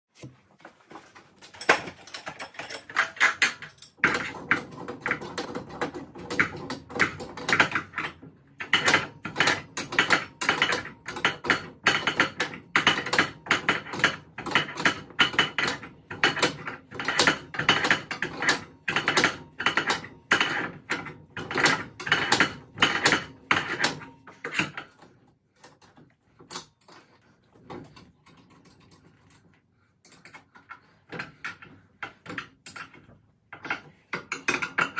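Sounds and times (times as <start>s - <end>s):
metallic clicks and clanks: 1.4s - 34.9s.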